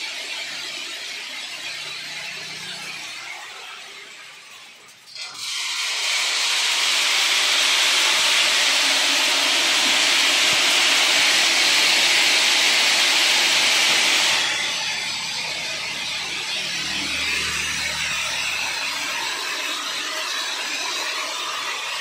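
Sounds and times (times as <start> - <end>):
seeds streaming down a grader: 5.2 - 22.0.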